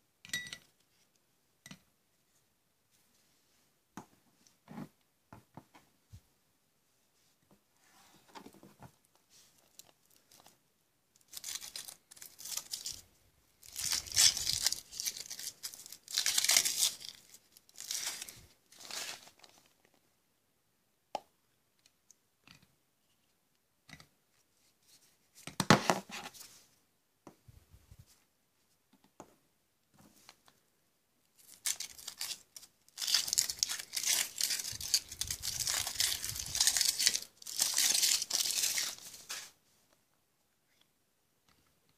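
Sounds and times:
foil wrappers tearing and crinkling: 11.3 - 13.0, 13.6 - 19.5, 31.4 - 39.4.

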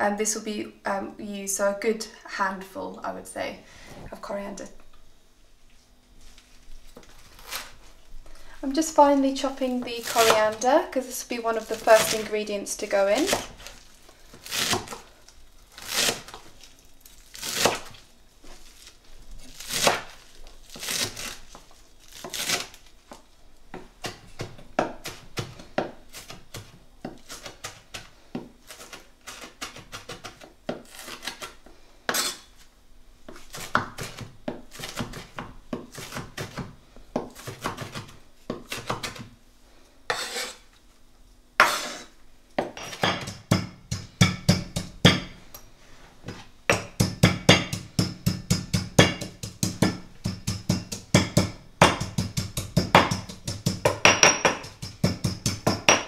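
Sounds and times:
knife chopping on wooden board: 33.3 - 39.3, 41.6 - 45.4, 46.3 - 56.0
pestle pounding in stone mortar: 42.6 - 45.4, 46.7 - 56.0.

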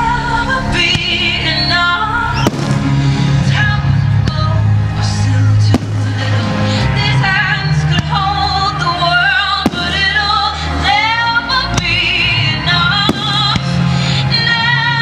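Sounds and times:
music with singing voice: 0.0 - 15.0
fireworks bursting: 2.3 - 3.0, 5.7 - 7.0, 9.4 - 10.5, 13.0 - 13.8.

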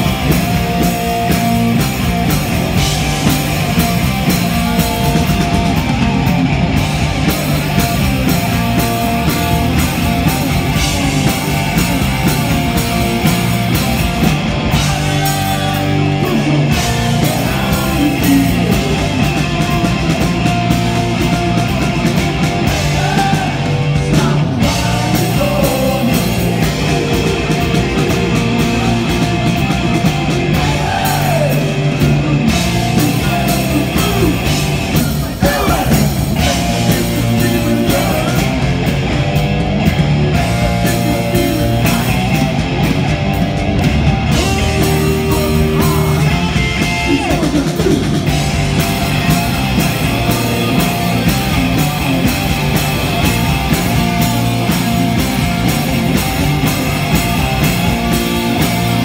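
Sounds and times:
distorted electric guitars: 0.0 - 59.0
drums: 0.0 - 59.0
person singing: 14.7 - 19.3, 22.6 - 29.7, 30.5 - 38.6.

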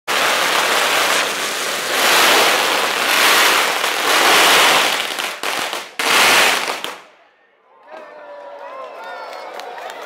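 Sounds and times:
firecrackers crackling: 0.1 - 7.1.

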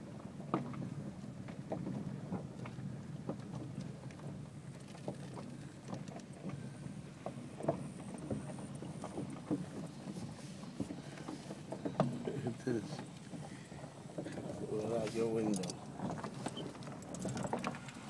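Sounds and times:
engine and road rumble: 0.0 - 18.0
light clicks and ticks: 14.2 - 18.0.

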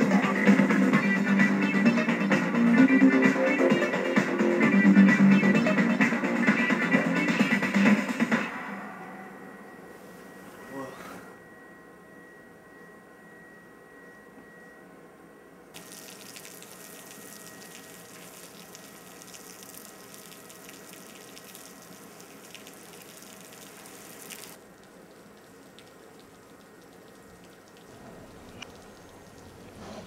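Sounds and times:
rain hiss with pattering drops: 15.8 - 30.0.

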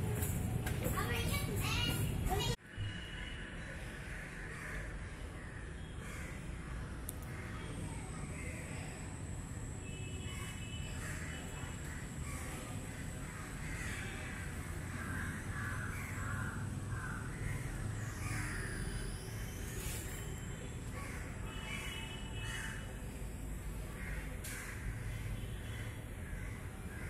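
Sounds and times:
crows cawing: 11.0 - 18.7, 21.0 - 22.9, 24.0 - 27.0.

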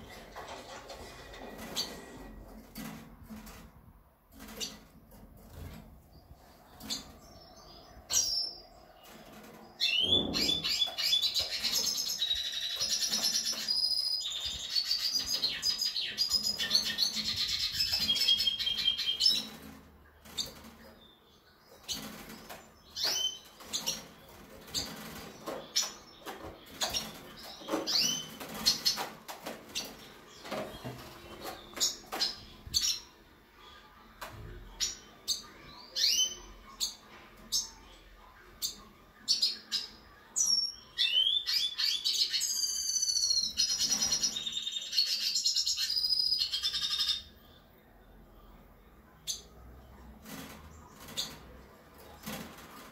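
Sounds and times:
bird chirps and calls: 9.8 - 19.6.

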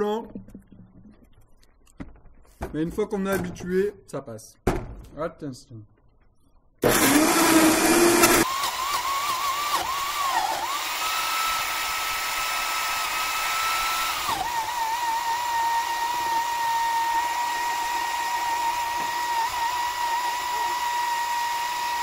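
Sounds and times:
blender whining: 6.8 - 22.0.

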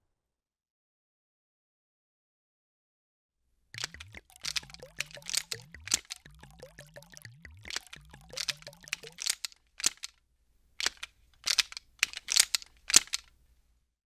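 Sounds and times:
liquid squirting and gurgling: 3.8 - 10.1.

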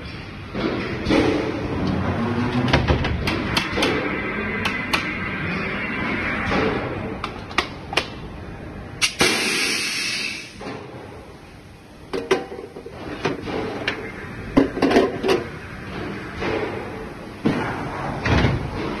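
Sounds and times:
machinery hissing: 9.0 - 10.6.

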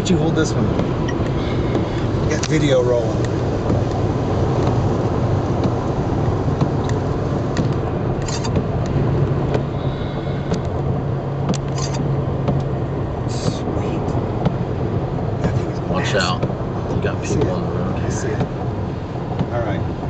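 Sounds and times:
car engine hum: 0.0 - 20.0
road noise inside car: 0.0 - 20.0.

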